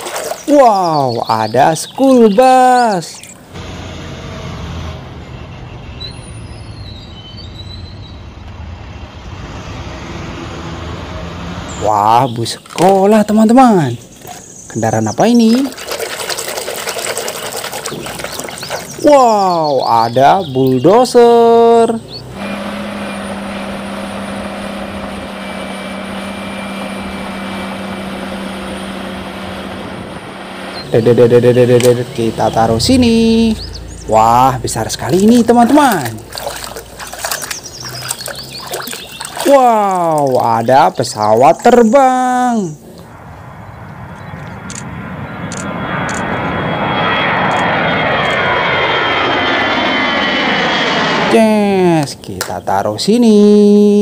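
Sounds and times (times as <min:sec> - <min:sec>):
bus engine rumbling: 0:03.4 - 0:15.4, 0:18.9 - 0:41.9
bulldozer diesel engine running: 0:22.0 - 0:37.0
bulldozer blade pushing sand: 0:22.4 - 0:29.7.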